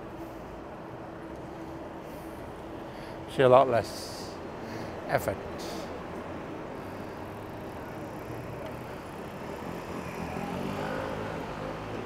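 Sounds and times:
road and wind noise: 0.0s - 12.0s
vehicle engine hum: 0.0s - 12.0s.

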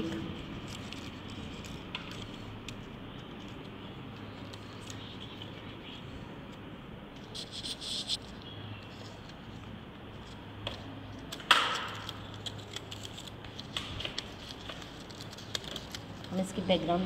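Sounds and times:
paper rustling and crinkling: 0.1s - 6.0s, 7.2s - 17.0s
hands tapping on paper: 10.6s - 12.3s.

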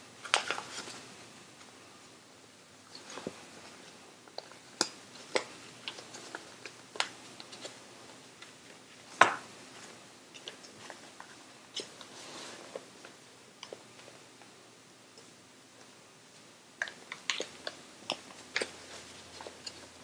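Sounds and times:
paper crinkling and crackling: 0.2s - 1.0s.

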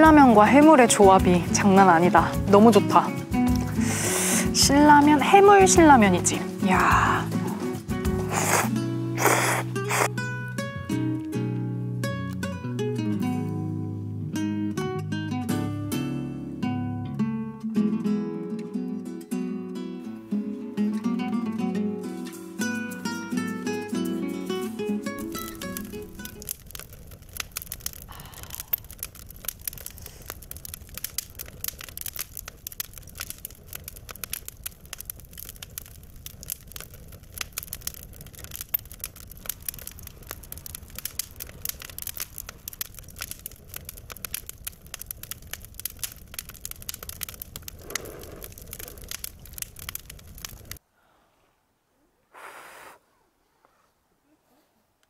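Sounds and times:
rain pattering: 0.0s - 10.1s, 24.3s - 50.8s.

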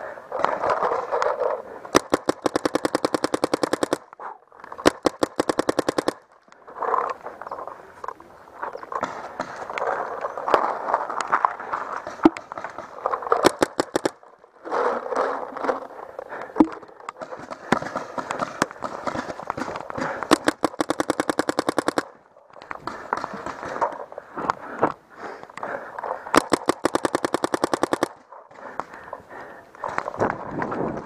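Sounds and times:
paintball marker firing: 1.9s - 4.2s, 4.8s - 6.3s, 12.0s - 14.2s, 16.7s - 23.9s, 26.3s - 29.0s.

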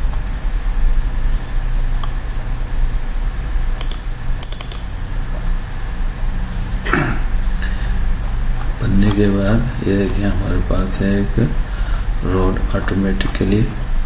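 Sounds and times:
steady low hum: 0.0s - 14.0s
computer clicks: 3.8s - 4.9s.

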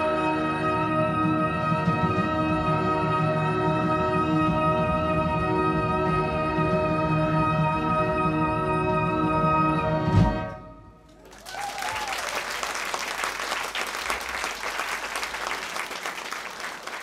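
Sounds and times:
audience applause: 11.1s - 17.0s.

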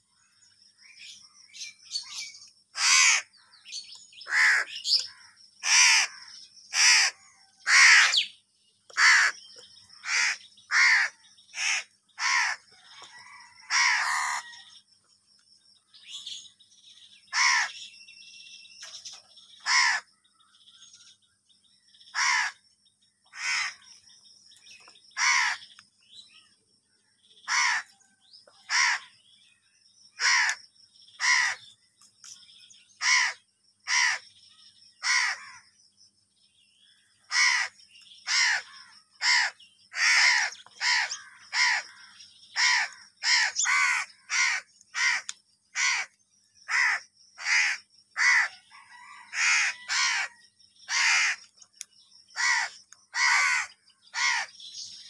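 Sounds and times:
crows cawing: 2.8s - 3.5s, 4.2s - 8.2s, 8.9s - 9.4s, 10.0s - 14.8s, 17.3s - 17.8s, 19.6s - 20.1s, 22.1s - 22.6s, 23.3s - 23.8s, 25.2s - 25.8s, 27.5s - 28.0s, 28.6s - 29.2s, 30.2s - 30.6s, 31.2s - 31.7s, 33.0s - 34.3s, 35.0s - 35.7s, 37.3s - 51.5s, 52.4s - 54.5s.

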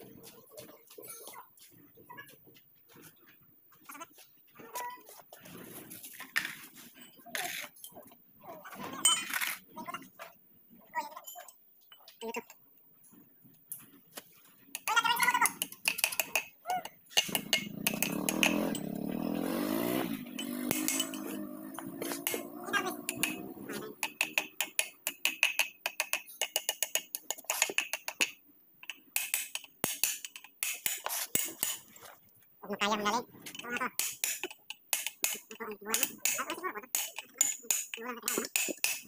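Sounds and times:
metal-on-metal tapping and clinking: 14.7s - 19.3s, 20.2s - 31.9s, 33.4s - 39.0s.

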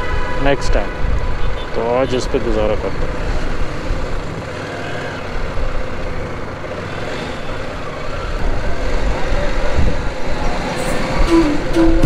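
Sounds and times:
road noise: 0.0s - 12.0s
wind noise: 8.4s - 12.0s.

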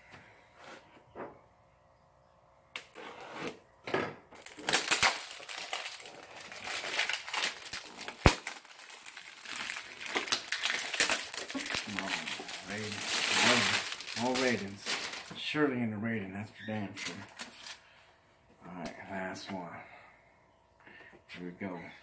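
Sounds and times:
cardboard packaging tearing: 4.4s - 15.4s.

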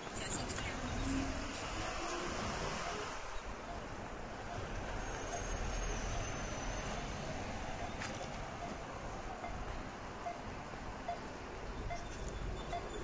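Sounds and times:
city background noise: 0.0s - 13.0s.

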